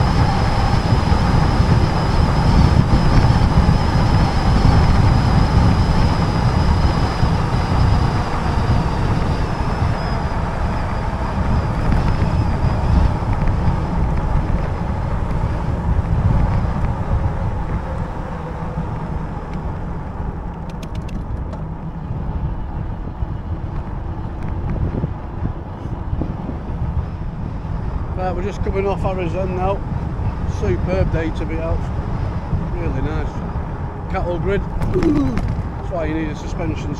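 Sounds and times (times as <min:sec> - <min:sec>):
tyre road noise: 0:00.0 - 0:36.9
wind buffeting microphone: 0:00.0 - 0:36.9.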